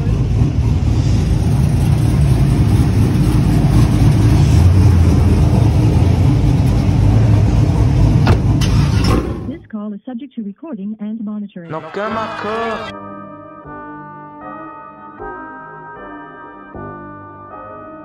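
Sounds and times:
truck engine idling: 0:00.0 - 0:09.6.

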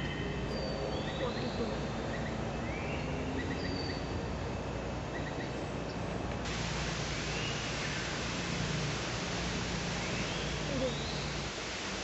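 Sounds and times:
steady background hiss: 0:00.0 - 0:12.0
small bird calls: 0:09.9 - 0:11.5.

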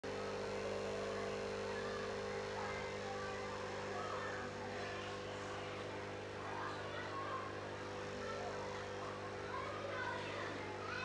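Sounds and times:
aquarium pump humming: 0:00.0 - 0:11.0.

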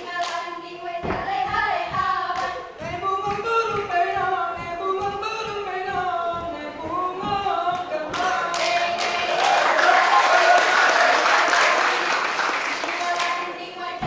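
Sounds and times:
group singing a cappella: 0:00.0 - 0:14.0
hand claps and slaps: 0:00.1 - 0:06.1, 0:06.9 - 0:13.5.

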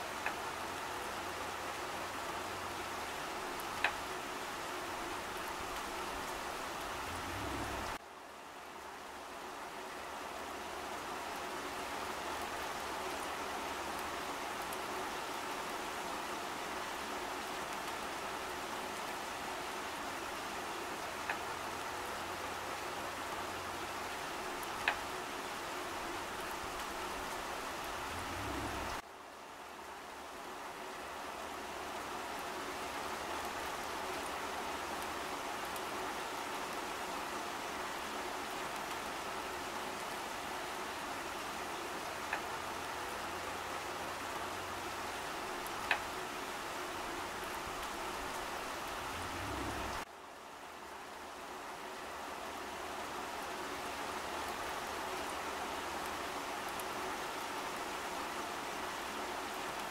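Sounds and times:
rain falling on plants: 0:00.0 - 0:59.9.

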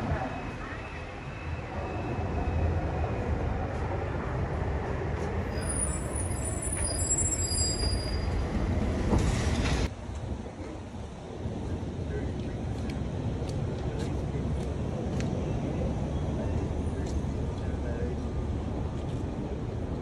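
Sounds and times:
heavy traffic rumbling: 0:00.0 - 0:20.0
high thin squeal: 0:05.5 - 0:08.5.

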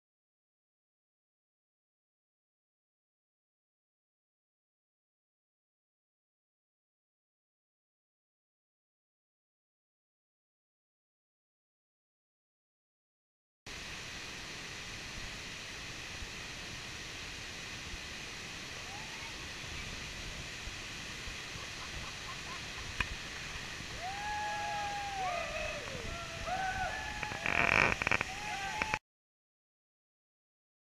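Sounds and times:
waterfall rushing into pool: 0:13.7 - 0:29.0
loud shout-like burst: 0:23.9 - 0:29.0
long rising and falling calls: 0:24.0 - 0:29.0.

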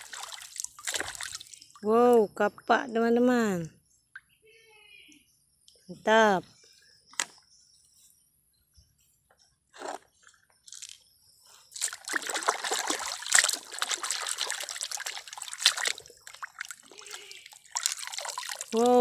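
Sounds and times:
hand splashing in muddy water: 0:11.8 - 0:19.0.

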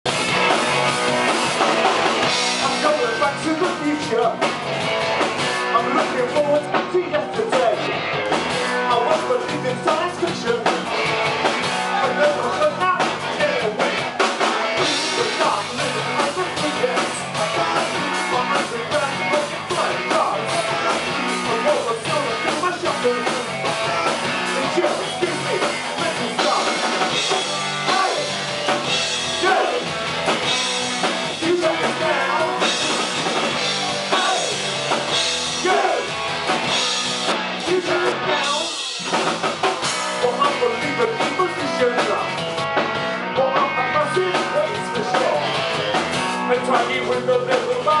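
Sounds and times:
drum kit: 0:00.0 - 0:48.0
electric guitars: 0:00.1 - 0:48.0
person singing: 0:05.6 - 0:10.9, 0:11.7 - 0:14.0, 0:14.8 - 0:26.9, 0:27.8 - 0:28.4, 0:29.4 - 0:29.9, 0:31.3 - 0:34.8, 0:35.6 - 0:39.3, 0:40.1 - 0:42.3, 0:43.3 - 0:48.0.

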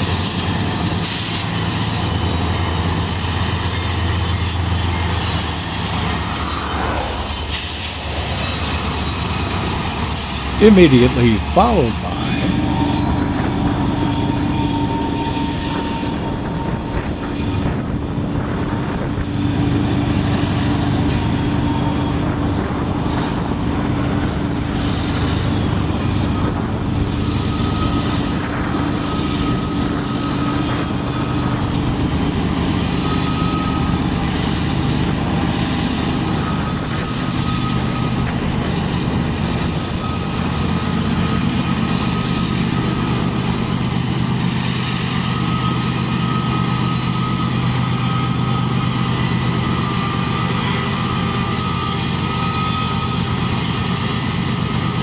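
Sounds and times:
locomotive engine drone: 0:00.0 - 0:55.0
freight train rumble: 0:13.1 - 0:55.0.

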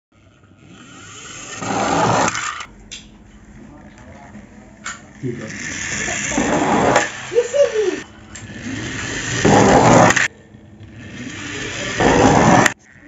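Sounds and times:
toy truck wheels whirring: 0:00.2 - 0:02.7, 0:05.3 - 0:13.0.

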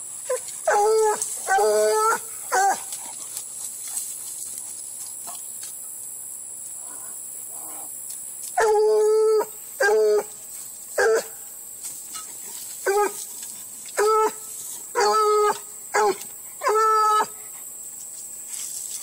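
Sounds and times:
hound baying: 0:00.3 - 0:03.1, 0:15.0 - 0:17.4.

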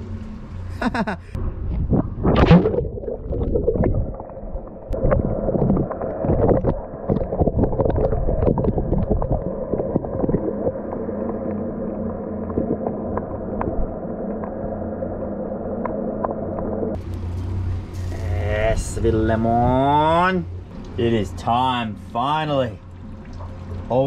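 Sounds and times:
low underwater rumble: 0:00.0 - 0:18.3
water sloshing and bubbling: 0:00.0 - 0:24.0.

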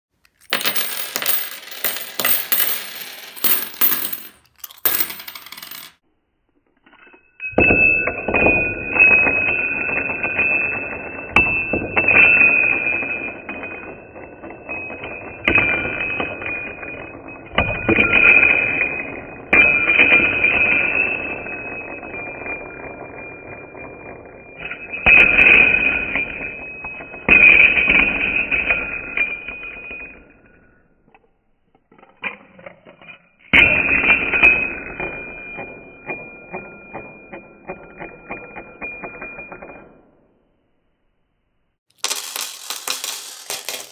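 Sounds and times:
coins pouring onto wooden table: 0:00.3 - 0:06.0, 0:41.9 - 0:43.9.

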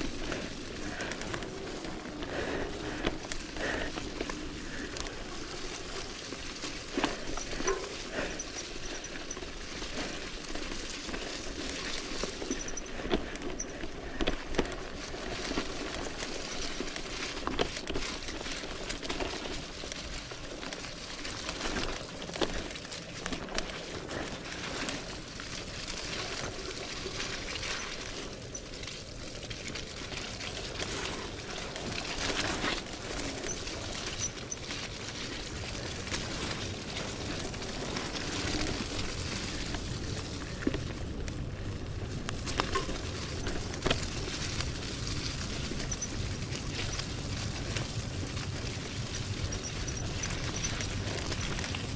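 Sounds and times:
tyre and riding noise: 0:00.0 - 0:51.9
bike knocks and rattles: 0:06.9 - 0:11.3, 0:42.2 - 0:48.0.

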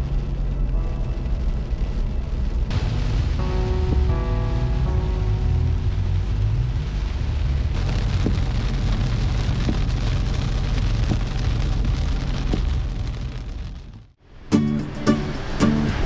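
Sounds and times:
heavy rain on windshield: 0:00.0 - 0:14.2
low road rumble: 0:00.0 - 0:16.0
music: 0:00.6 - 0:07.6, 0:14.5 - 0:16.0.

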